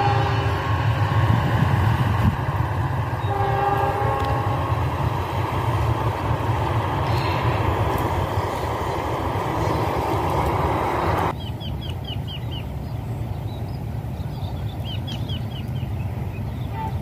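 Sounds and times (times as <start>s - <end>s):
wind on microphone: 0.0s - 11.3s
steady rushing noise: 0.0s - 16.7s.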